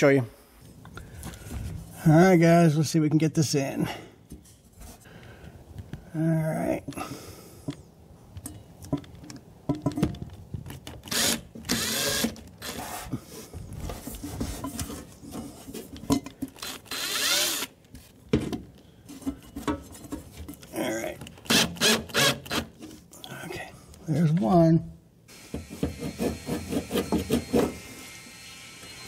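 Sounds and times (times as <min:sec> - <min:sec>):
cordless drill driving screw: 0:11.0 - 0:13.1, 0:16.6 - 0:17.7, 0:21.4 - 0:22.7.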